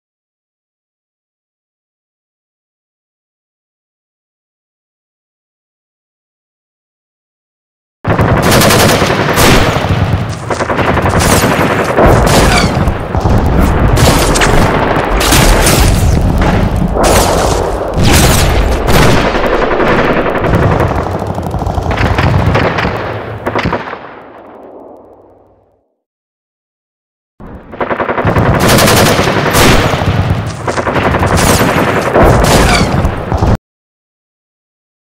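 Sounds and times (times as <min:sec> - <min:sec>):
machine-gun fire and gunshots: 0:08.1 - 0:25.4, 0:27.4 - 0:33.6.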